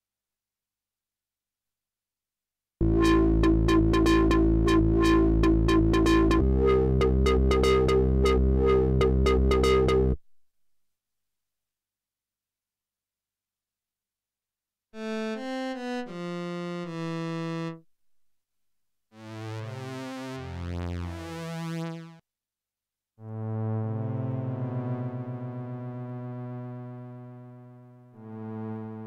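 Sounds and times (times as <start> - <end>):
held string-pad chord: 2.8 - 10.2
synthesizer run of notes: 2.8 - 10.2.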